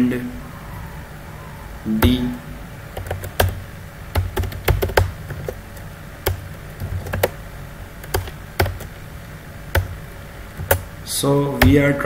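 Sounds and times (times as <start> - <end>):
keyboard keystroke clicks: 8.0 - 8.9.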